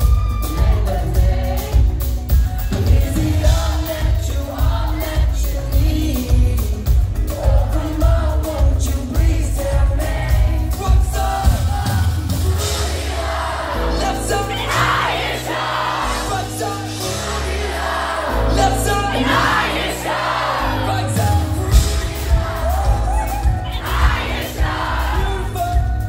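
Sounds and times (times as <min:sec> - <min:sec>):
thumping drum beat: 0:00.0 - 0:13.4, 0:21.1 - 0:26.0
crowd yelling and cheering: 0:00.0 - 0:26.0
live pop band with singing: 0:00.0 - 0:26.0.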